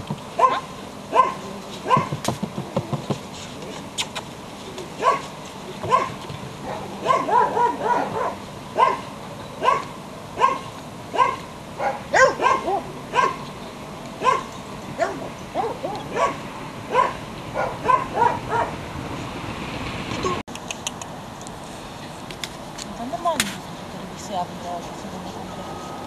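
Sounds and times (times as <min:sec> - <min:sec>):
puppy yipping: 0:05.0 - 0:09.0, 0:09.6 - 0:13.4, 0:14.2 - 0:18.7.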